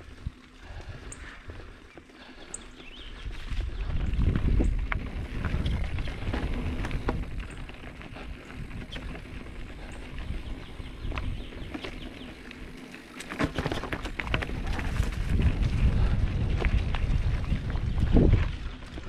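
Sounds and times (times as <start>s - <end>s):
bike clicks and rattles: 0.0s - 19.0s
bike tyres rumbling on dirt: 0.0s - 19.0s
wind on microphone: 3.0s - 11.8s, 14.2s - 19.0s.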